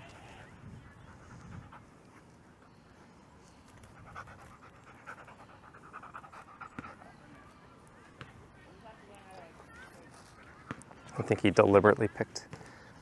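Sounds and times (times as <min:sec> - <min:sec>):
dog panting: 0:00.9 - 0:02.4, 0:03.6 - 0:07.2.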